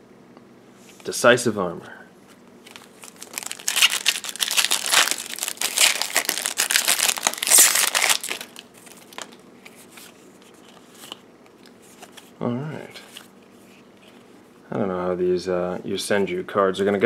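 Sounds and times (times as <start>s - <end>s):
foil wrapper crinkling and tearing: 2.7s - 9.4s.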